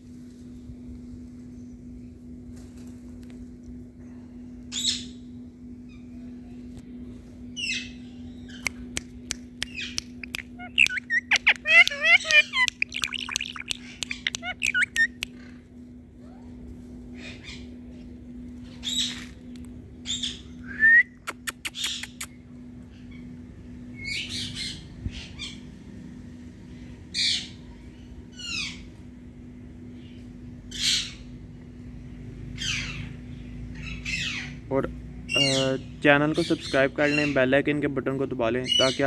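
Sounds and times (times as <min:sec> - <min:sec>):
parakeet squawking and chirping: 0:09.7 - 0:15.2.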